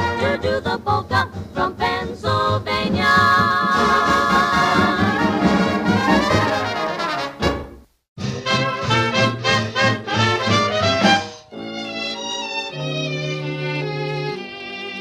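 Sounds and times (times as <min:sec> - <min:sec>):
brass band music: 0:00.0 - 0:00.6, 0:03.7 - 0:15.0
vibrato singing: 0:00.0 - 0:06.9, 0:08.2 - 0:15.0.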